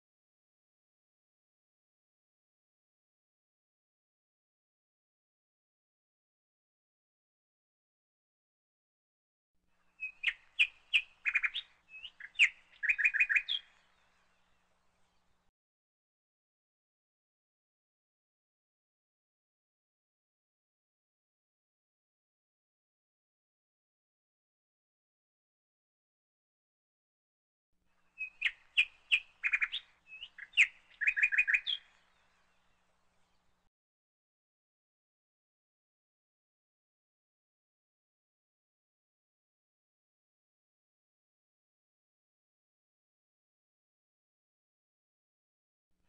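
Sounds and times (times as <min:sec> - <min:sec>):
small bird chirping: 0:09.8 - 0:14.6, 0:28.0 - 0:33.6.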